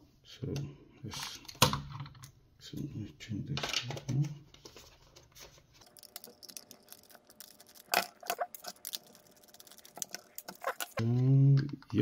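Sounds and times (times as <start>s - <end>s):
plastic shell handled: 3.6s - 12.0s.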